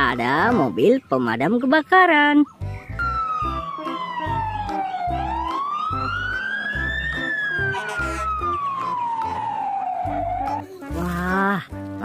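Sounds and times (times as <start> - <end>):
music with steady beat: 2.6 - 11.0
fire engine siren wailing: 3.0 - 10.6.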